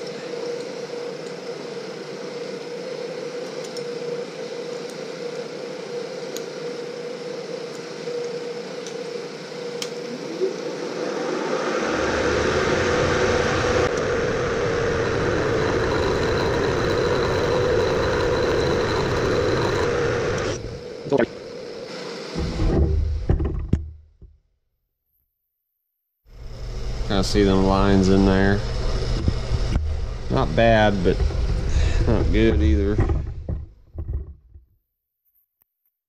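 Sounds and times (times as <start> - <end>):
milling spindle humming: 4.0 - 23.9, 26.4 - 34.4
cutter rough rumble cutting metal: 10.9 - 21.1, 26.4 - 34.3.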